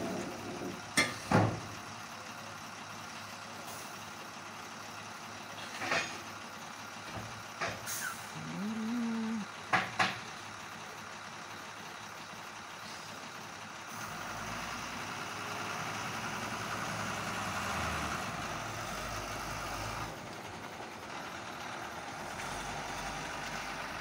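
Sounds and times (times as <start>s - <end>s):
heavy truck engine running: 0.0s - 24.0s.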